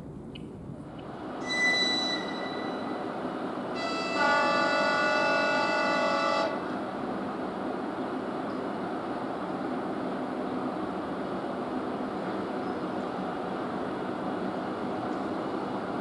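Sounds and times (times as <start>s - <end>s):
electric train horn: 1.4s - 6.7s.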